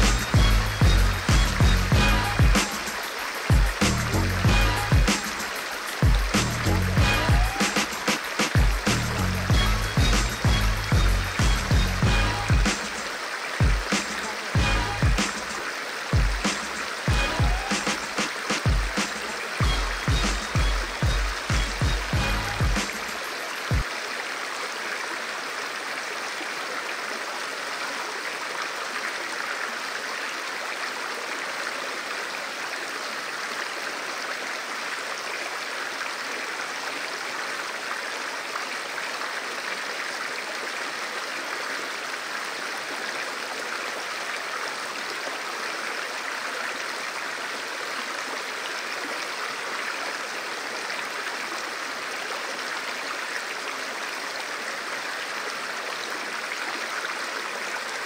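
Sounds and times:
river rushing over rocks: 2.0 - 3.9, 4.5 - 9.0, 10.8 - 58.0.

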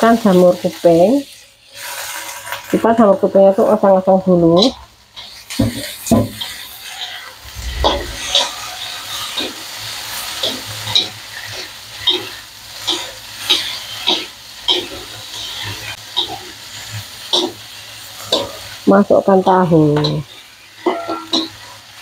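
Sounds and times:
food sizzling in a wok: 0.0 - 22.0
metal spatula scraping a wok: 1.2 - 2.8, 4.5 - 18.8, 20.0 - 22.0.

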